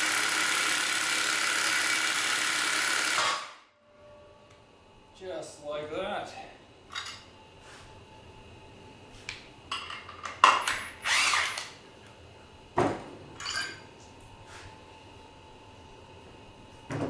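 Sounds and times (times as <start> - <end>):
cordless drill whirring: 0.0 - 3.5, 10.9 - 11.7.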